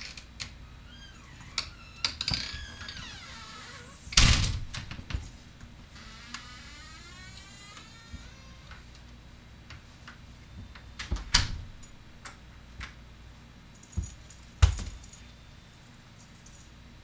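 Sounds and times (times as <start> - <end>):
keys jangling: 13.7 - 15.3.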